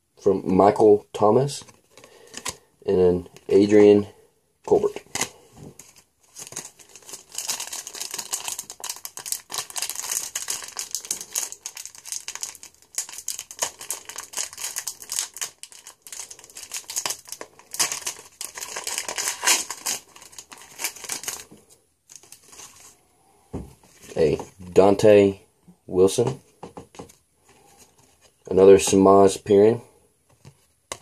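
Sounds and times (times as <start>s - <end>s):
foil wrapper crinkling and tearing: 5.9s - 21.5s.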